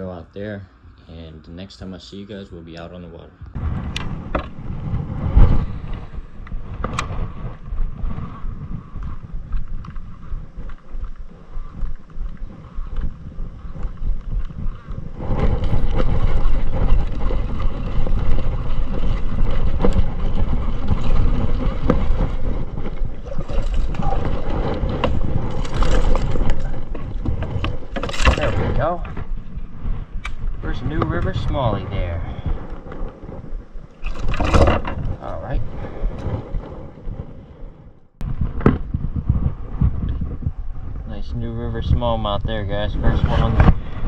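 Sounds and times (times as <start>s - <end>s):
wind buffeting microphone: 1.6s - 44.0s.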